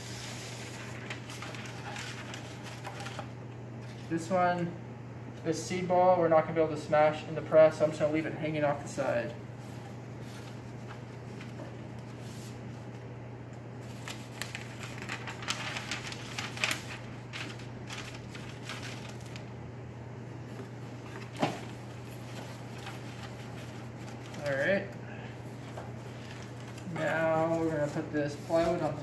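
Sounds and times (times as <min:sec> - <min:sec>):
steady low hum: 0:00.0 - 0:29.0
paper and cardboard rustling: 0:00.1 - 0:04.2, 0:13.8 - 0:19.5, 0:20.5 - 0:24.9, 0:25.5 - 0:29.0.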